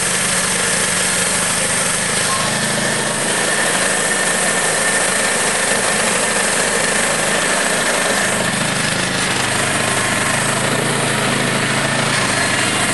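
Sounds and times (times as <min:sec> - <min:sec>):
band sawmill running: 0:00.0 - 0:12.9
high whine: 0:00.0 - 0:12.9.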